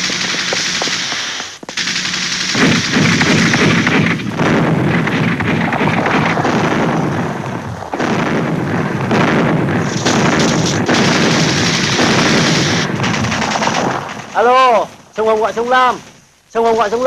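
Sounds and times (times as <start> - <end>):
machine-gun and rifle fire: 0.0 - 15.7.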